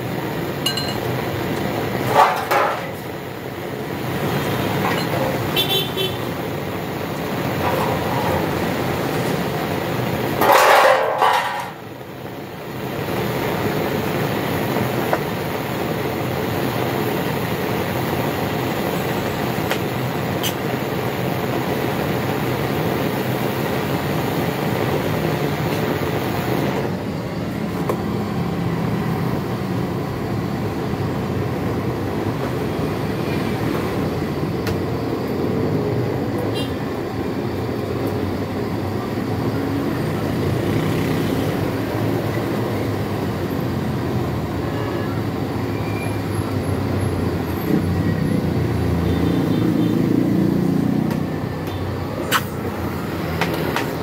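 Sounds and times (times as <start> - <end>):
blow lamp hissing: 12.2 - 34.7.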